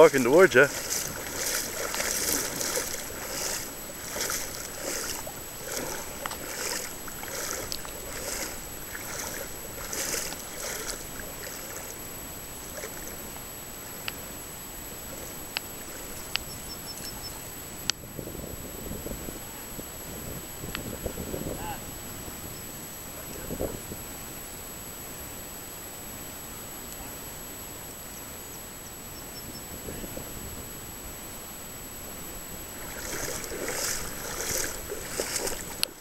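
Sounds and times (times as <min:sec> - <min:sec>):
footsteps wading in water: 0:00.0 - 0:12.0, 0:12.6 - 0:13.4, 0:15.0 - 0:16.4, 0:32.6 - 0:36.0
faint water noise: 0:00.0 - 0:18.1, 0:32.0 - 0:36.0.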